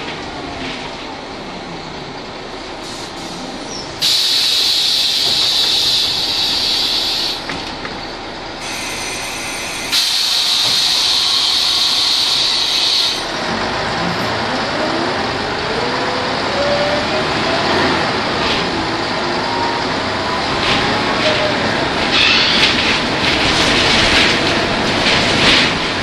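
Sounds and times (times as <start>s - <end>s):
bus rising whine: 0.0s - 26.0s
diesel bus engine running: 0.0s - 26.0s
compressed air hissing: 4.0s - 7.5s, 8.6s - 13.3s.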